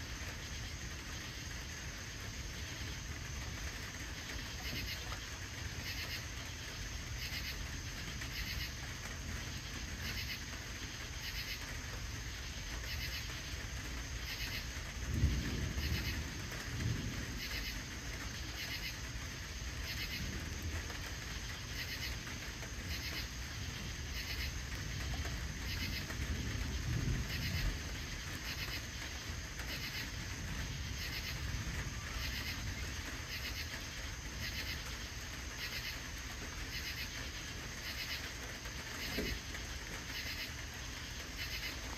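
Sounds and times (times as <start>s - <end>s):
crickets chirping: 0.0s - 41.9s
distant thunder rumble: 10.9s - 41.9s.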